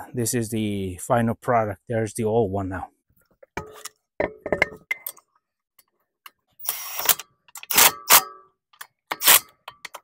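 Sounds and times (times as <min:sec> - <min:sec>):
impact wrench bursts: 0:06.6 - 0:08.3.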